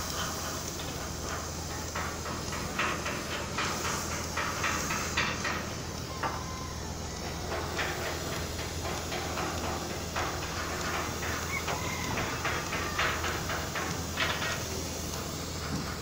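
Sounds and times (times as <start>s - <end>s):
ship engine humming: 0.0s - 16.0s
short knocks and clatter: 7.2s - 16.0s.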